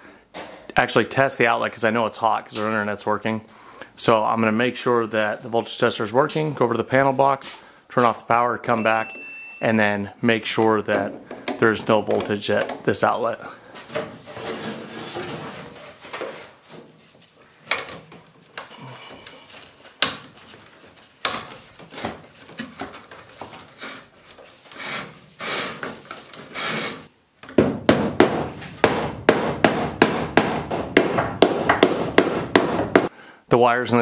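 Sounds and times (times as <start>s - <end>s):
hammer striking wooden joist: 27.5s - 33.1s.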